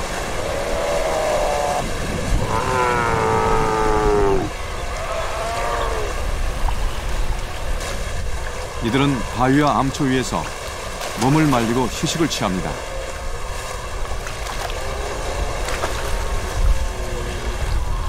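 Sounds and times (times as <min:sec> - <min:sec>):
sea lions roaring: 0:00.0 - 0:06.5, 0:14.7 - 0:18.0
low wash of sea: 0:00.0 - 0:18.0.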